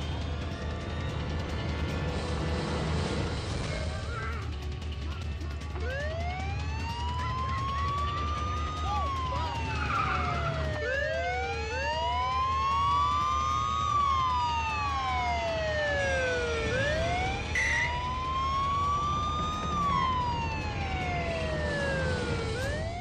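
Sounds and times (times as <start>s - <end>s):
low vehicle rumble: 0.0s - 23.0s
police siren wailing: 5.6s - 23.0s.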